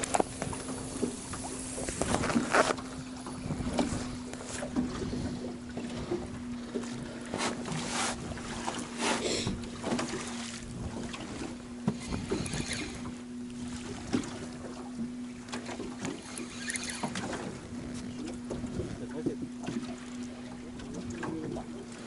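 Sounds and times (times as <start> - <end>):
gusty wind: 0.0 - 9.0
waves slapping boat hull: 0.0 - 22.0.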